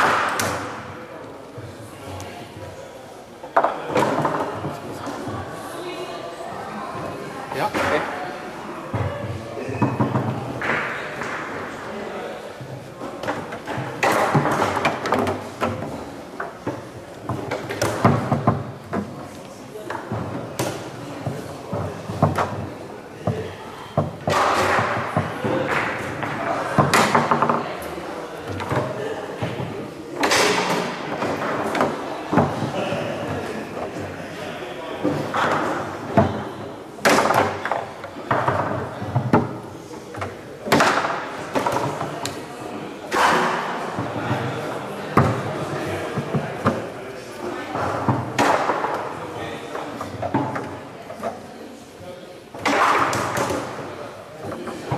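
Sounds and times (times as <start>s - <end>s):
foosball ball and rods knocking: 13.0s - 23.4s, 24.0s - 27.7s, 28.4s - 34.1s, 35.0s - 42.4s, 52.5s - 54.9s
foosball knocks and clacks: 24.0s - 27.7s.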